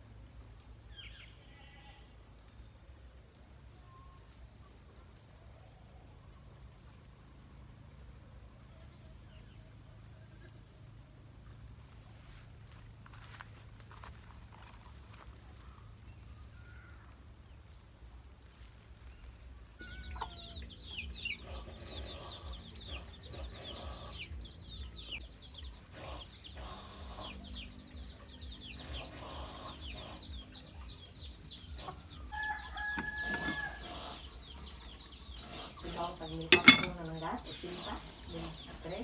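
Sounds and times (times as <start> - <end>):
chickens peeping and clucking: 19.7 - 39.0.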